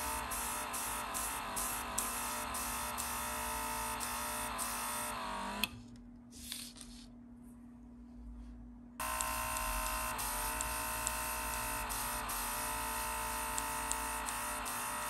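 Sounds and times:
airbrush compressor buzzing whine: 0.0s - 5.7s, 9.0s - 15.0s.

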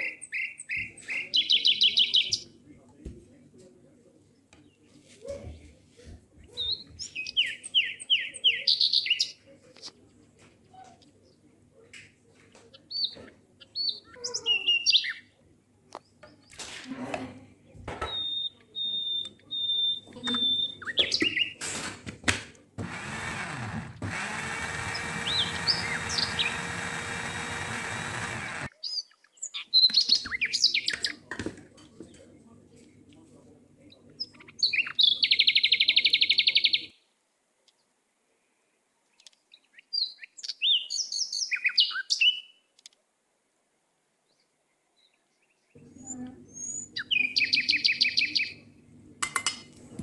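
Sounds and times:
small birds chirping: 0.0s - 3.0s, 6.4s - 16.6s, 17.6s - 21.6s, 22.9s - 31.3s, 31.9s - 38.0s, 38.6s - 43.0s, 44.2s - 48.8s
electric blender running: 22.8s - 28.7s.

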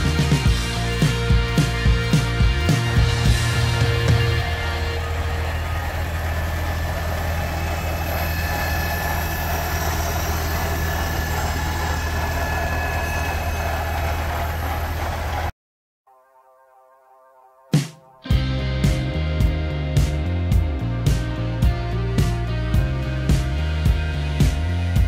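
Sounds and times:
tractor engine running slowly: 2.9s - 15.5s.

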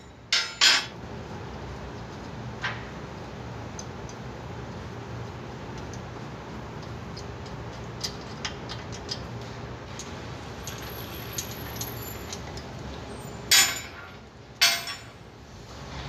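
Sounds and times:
loud metal clanks: 0.3s - 0.9s, 13.5s - 15.2s.

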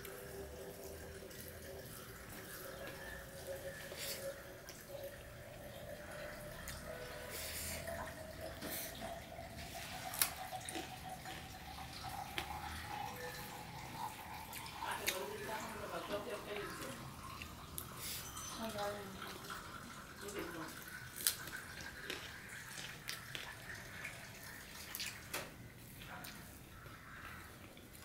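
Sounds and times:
chewing and mouth sounds: 1.9s - 15.6s, 20.8s - 28.0s.

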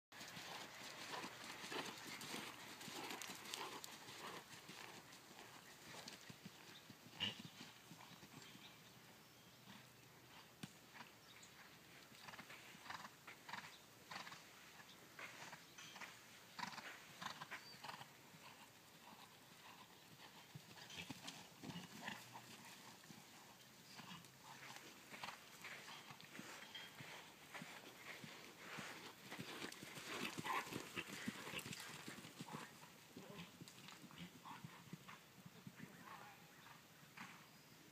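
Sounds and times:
horse hoofbeats on sand: 20.6s - 32.6s.

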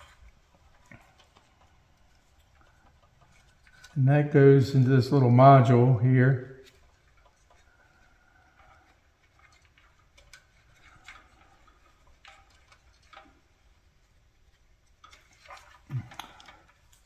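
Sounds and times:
faint clicks and rustles of wiring: 0.0s - 17.0s.

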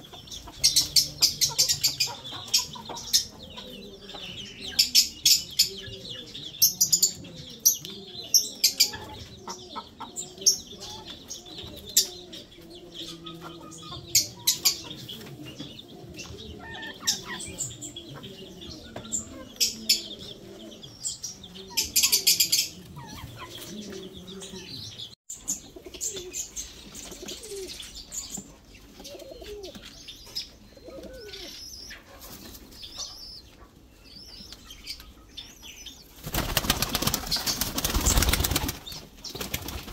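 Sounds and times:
chickens clucking: 0.0s - 39.9s
pigeons cooing: 0.0s - 39.9s
wings flapping: 36.2s - 39.9s.

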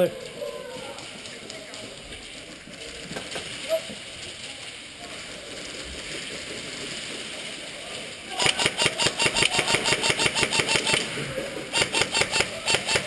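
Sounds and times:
faint background noise: 0.0s - 13.0s
airsoft gun rapid fire: 8.3s - 11.1s, 11.7s - 13.0s.

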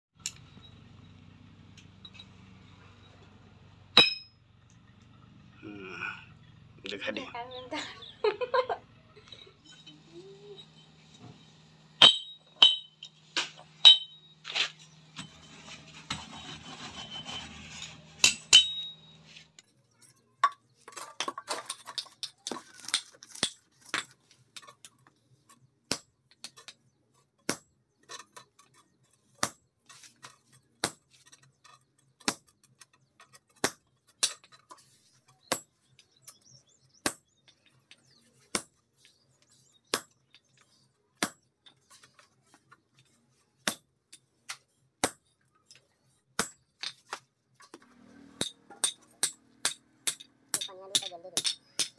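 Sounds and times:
hammer striking chisel on anvil: 4.0s - 4.3s, 12.0s - 16.6s, 18.2s - 19.2s, 48.3s - 51.9s.

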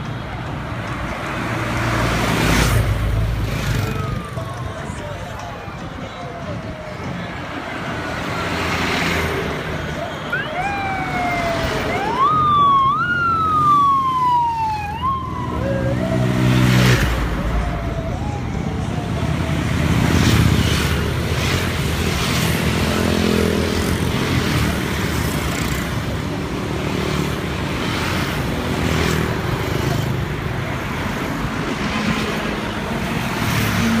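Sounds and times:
road traffic passing: 0.0s - 34.0s
motorbike engines passing: 0.2s - 34.0s
siren sweeping: 10.0s - 21.2s.

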